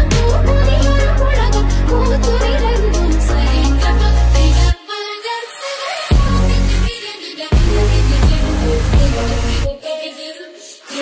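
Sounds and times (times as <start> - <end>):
electronic music with heavy bass: 0.0 - 4.8, 6.1 - 9.8.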